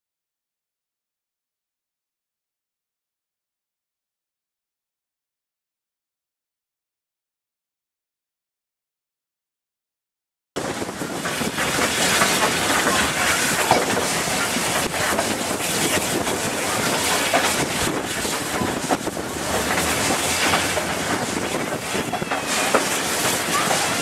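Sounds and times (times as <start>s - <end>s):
steam locomotive working: 10.6s - 24.0s
wheels running on track: 10.6s - 24.0s.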